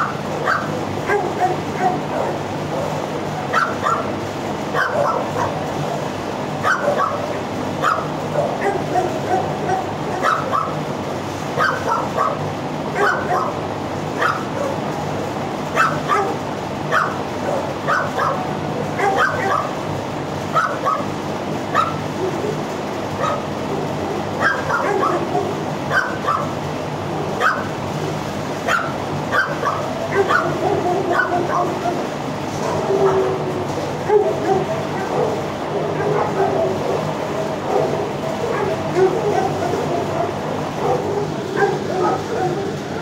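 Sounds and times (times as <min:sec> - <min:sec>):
dogs barking and yipping: 0:00.0 - 0:15.0, 0:15.6 - 0:43.0.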